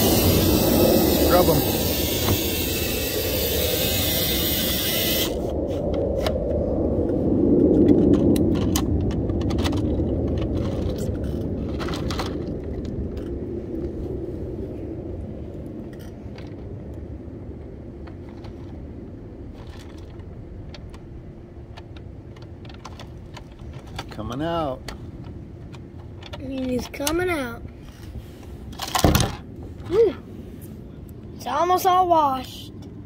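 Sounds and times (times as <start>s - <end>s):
low rumble: 0.0s - 26.6s
plastic toy clicks and scrapes: 21.8s - 24.2s, 26.0s - 27.2s.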